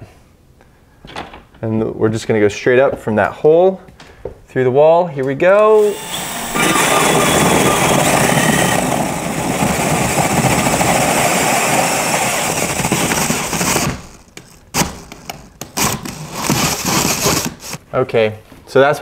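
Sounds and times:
cordless drill grinding through wall: 0:05.6 - 0:14.4.

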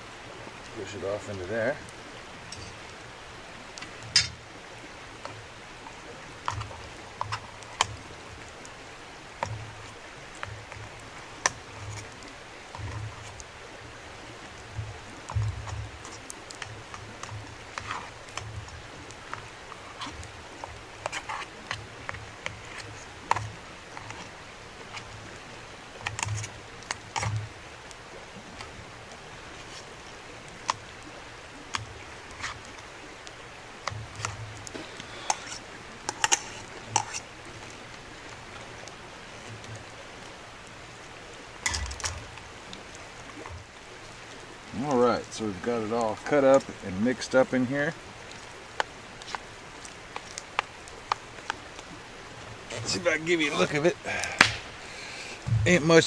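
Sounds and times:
faint steady hiss: 0:00.0 - 0:56.0
utensil knocking metal pot: 0:04.2 - 0:04.4.

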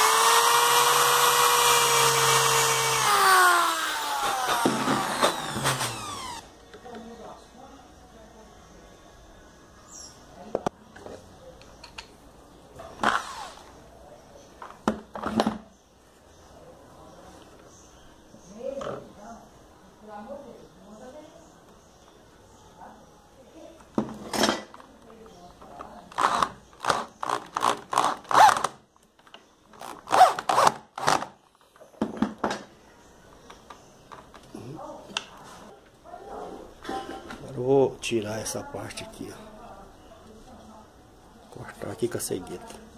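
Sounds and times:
electric drill boring into wood: 0:00.0 - 0:06.5.

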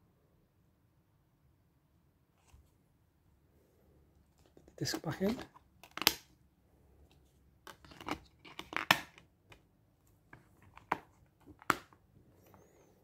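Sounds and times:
plastic case clicks and scrapes: 0:07.6 - 0:09.3.

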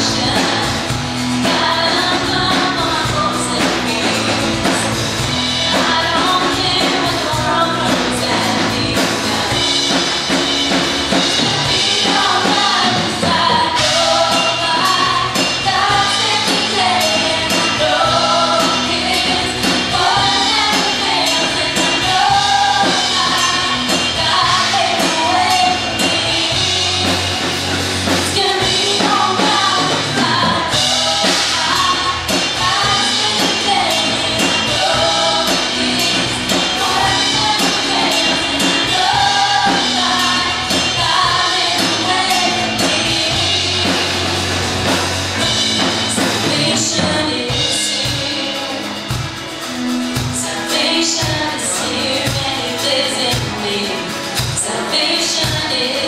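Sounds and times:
drum kit: 0:00.0 - 0:56.0
lead vocals singing: 0:00.0 - 0:56.0
rock band playing: 0:00.0 - 0:56.0.

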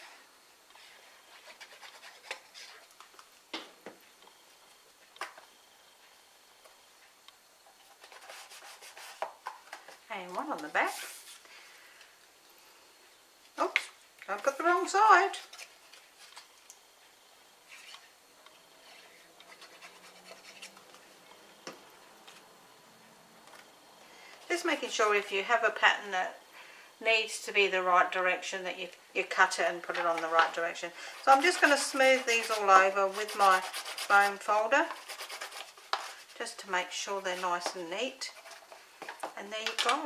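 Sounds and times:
paper rustling and scratching: 0:00.8 - 0:03.1, 0:07.7 - 0:10.0, 0:18.8 - 0:21.0, 0:29.9 - 0:36.5, 0:38.3 - 0:38.8
cardstock rustling: 0:29.9 - 0:36.4.

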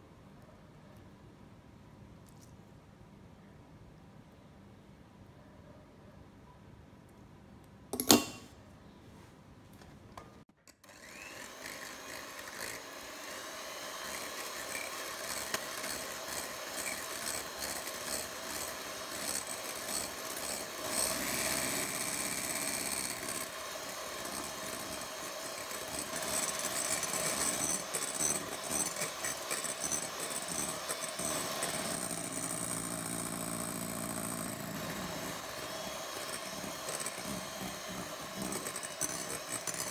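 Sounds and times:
beater clicking into hand mixer: 0:10.7 - 0:20.4
electric hand mixer whirring: 0:10.8 - 0:39.9.

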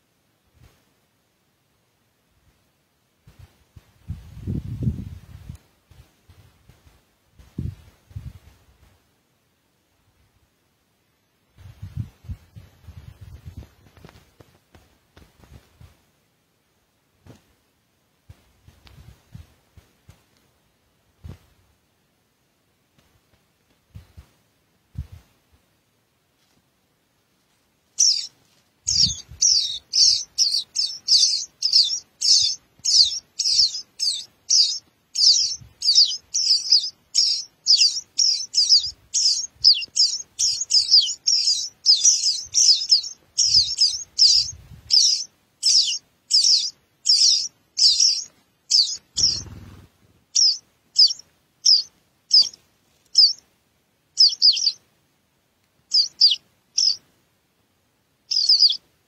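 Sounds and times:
nestlings cheeping: 0:28.0 - 0:28.3, 0:28.9 - 0:53.4, 0:54.2 - 0:54.8, 0:55.9 - 0:57.0, 0:58.3 - 0:58.8.

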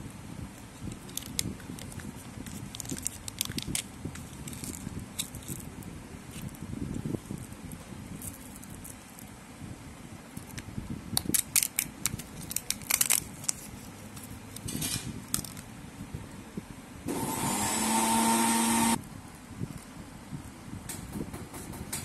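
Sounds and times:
plastic tray and foil crackling: 0:00.8 - 0:05.8, 0:11.3 - 0:15.6
loud hiss with held tone: 0:17.0 - 0:19.0.

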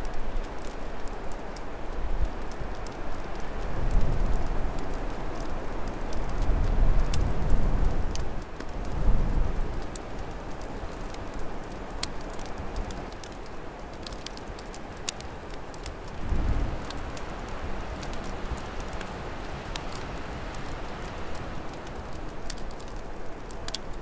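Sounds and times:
fire crackling and popping: 0:00.0 - 0:24.0.

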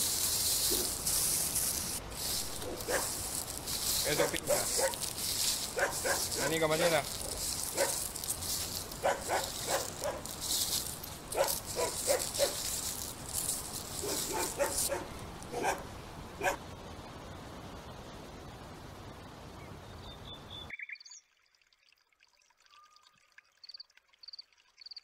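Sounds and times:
puppy yapping: 0:04.2 - 0:05.0, 0:05.8 - 0:06.5, 0:14.0 - 0:15.8.

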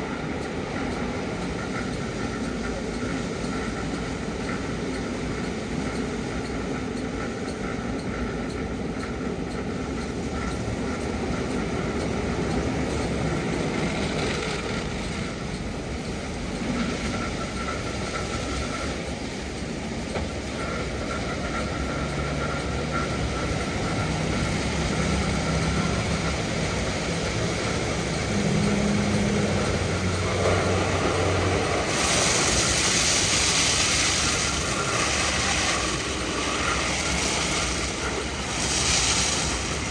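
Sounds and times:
high spraying hiss: 0:23.1 - 0:39.9
car wash brushes spinning: 0:25.8 - 0:39.9.

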